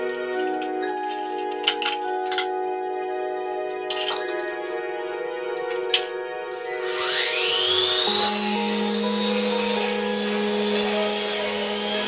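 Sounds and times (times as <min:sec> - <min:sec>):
angle grinder whining on metal: 0:06.5 - 0:12.0.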